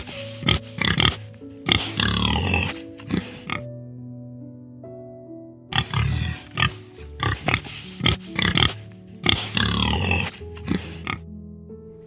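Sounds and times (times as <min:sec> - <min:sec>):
animal grunts and squeals: 0:00.0 - 0:03.7, 0:05.7 - 0:11.2
background music: 0:00.0 - 0:12.0.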